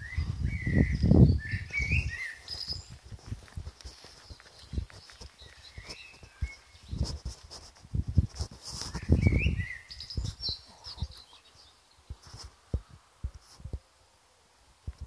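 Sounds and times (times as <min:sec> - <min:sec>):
birds chirping: 0:00.0 - 0:07.4, 0:08.8 - 0:12.5.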